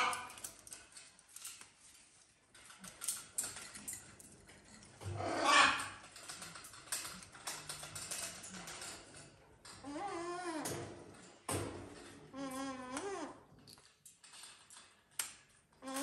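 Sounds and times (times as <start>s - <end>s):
parrot squawk: 5.2s - 6.0s.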